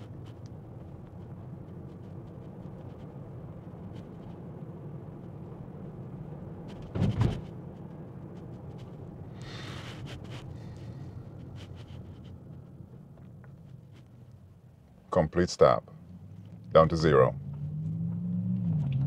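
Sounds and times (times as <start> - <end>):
traffic rumble inside car: 0.0 - 19.0.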